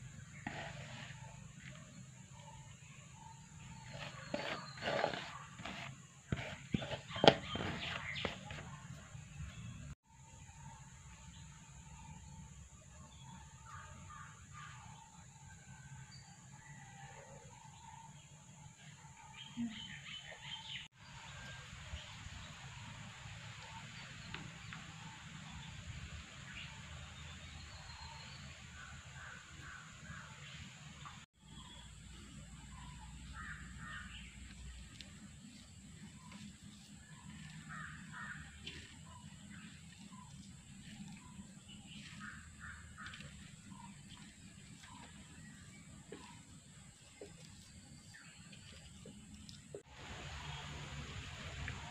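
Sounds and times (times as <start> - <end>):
hands mixing in a clay bowl: 0.0 - 10.0, 31.5 - 49.9
birds chirping: 0.0 - 15.8, 26.5 - 51.9
outdoor background noise: 0.0 - 51.9.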